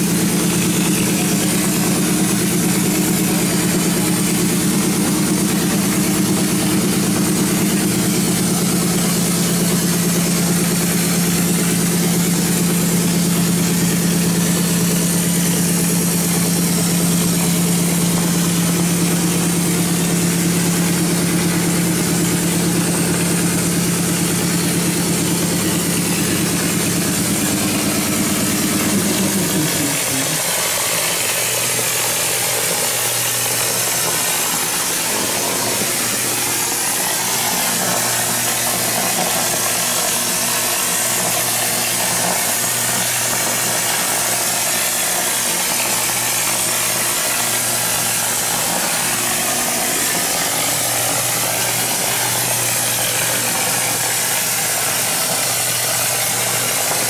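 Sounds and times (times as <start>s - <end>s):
air hissing: 0.0s - 39.6s
motor humming: 0.0s - 57.0s.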